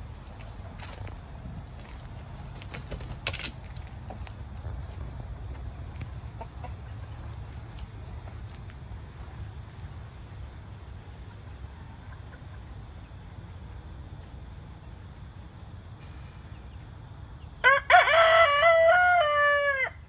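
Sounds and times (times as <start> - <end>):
rooster crowing: 17.6 - 20.0.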